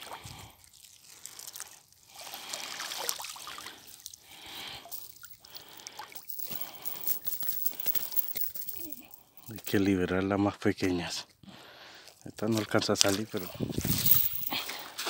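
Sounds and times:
water dripping and trickling: 0:00.0 - 0:06.4
wet clicks and splashes from net: 0:00.7 - 0:04.2.

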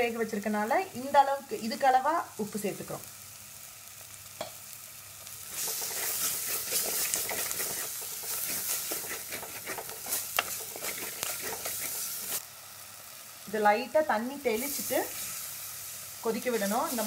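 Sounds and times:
food sizzling in oil: 0:00.0 - 0:17.0
spatula scraping pot: 0:05.5 - 0:12.4.

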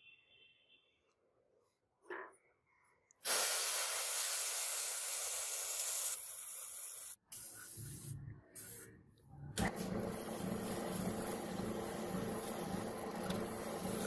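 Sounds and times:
aerosol spray can hiss: 0:03.2 - 0:08.9.

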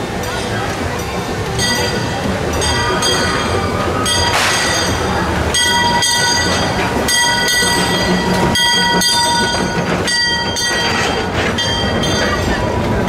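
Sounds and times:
steam locomotive chuffing: 0:00.0 - 0:13.0
train rumbling: 0:00.0 - 0:13.0.

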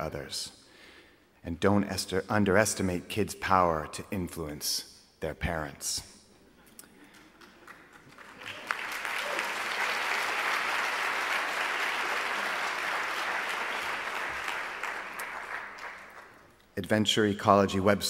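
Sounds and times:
audience applauding: 0:07.1 - 0:16.5.

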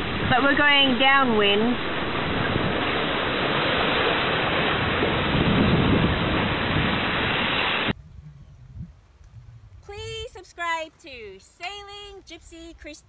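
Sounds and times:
sea water rushing: 0:00.0 - 0:07.9
wind buffeting microphone: 0:00.0 - 0:10.6.

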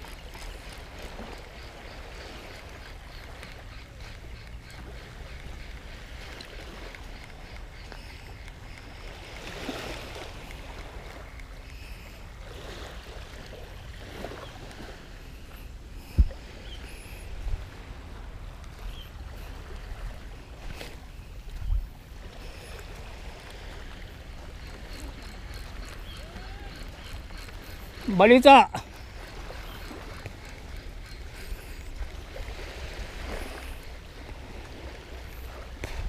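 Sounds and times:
wind rumble on microphone: 0:15.9 - 0:23.5.

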